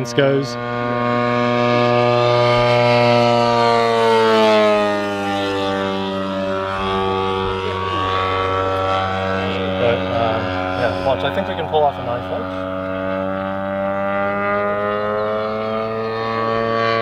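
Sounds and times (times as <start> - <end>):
model aircraft engine drone: 0.0 - 17.0.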